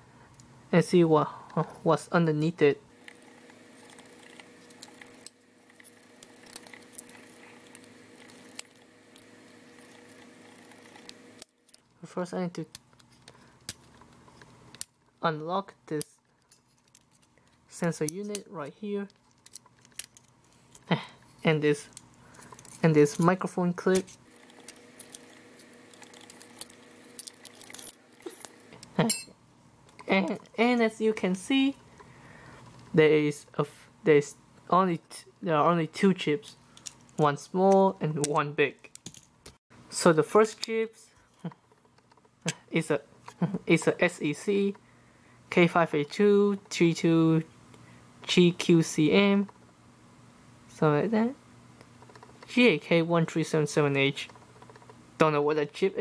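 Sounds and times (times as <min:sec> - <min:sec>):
faint steady hum: 0:00.0 - 0:56.0
plastic parts clicking and rattling: 0:03.0 - 0:12.0, 0:16.2 - 0:20.9, 0:21.8 - 0:28.9, 0:38.3 - 0:39.6.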